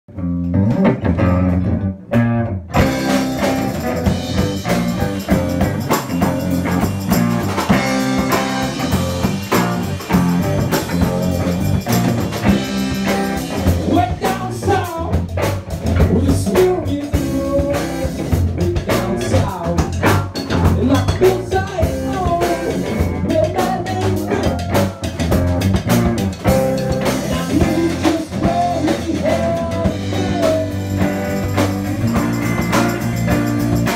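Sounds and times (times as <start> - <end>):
blues rock band playing: 0.1 - 33.9
wavering guitar lead line: 0.1 - 33.9.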